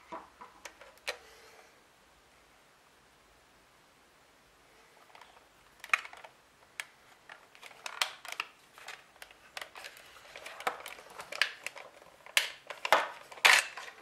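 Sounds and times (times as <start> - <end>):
plastic snaps: 5.1 - 14.0.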